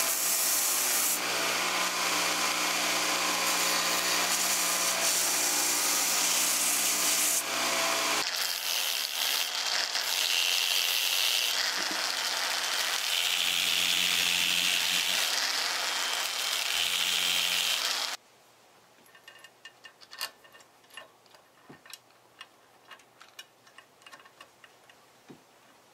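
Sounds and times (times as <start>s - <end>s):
belt sander humming: 0.0s - 18.2s
disc sander sanding wood: 0.0s - 18.2s.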